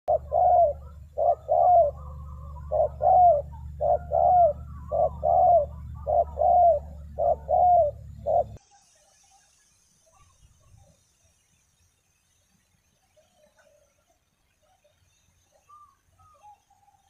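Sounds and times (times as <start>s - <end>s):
dove cooing: 0.1s - 8.6s, 15.6s - 17.0s
steady low hum: 0.1s - 8.6s.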